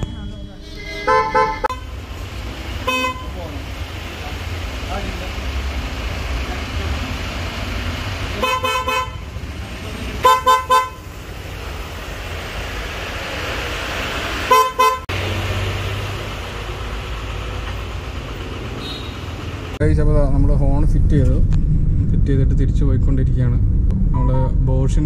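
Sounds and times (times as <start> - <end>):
car horn toots: 0.0 - 2.0, 2.8 - 3.4, 8.4 - 9.3, 10.2 - 11.1, 14.5 - 15.1, 18.8 - 19.4.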